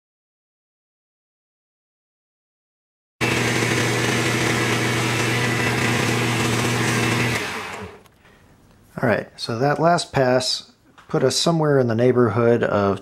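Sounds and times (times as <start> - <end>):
lathe motor hum: 3.2 - 8.0.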